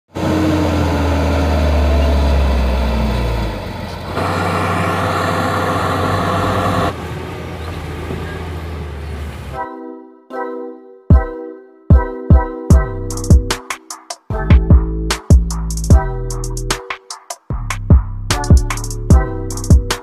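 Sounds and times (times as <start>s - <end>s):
diesel truck engine rumbling: 0.1s - 9.6s
music intro: 9.5s - 20.0s.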